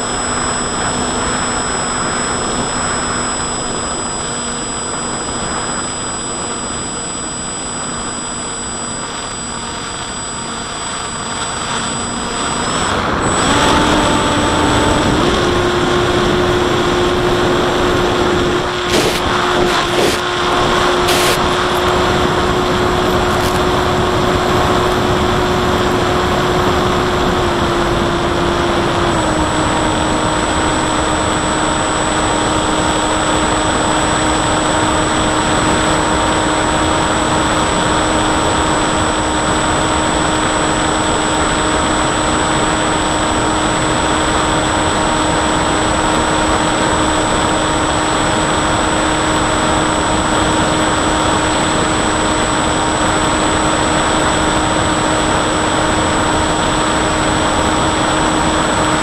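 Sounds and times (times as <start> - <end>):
electric motor and propeller whine: 0.0 - 59.0
loud wind rush: 9.0 - 59.0.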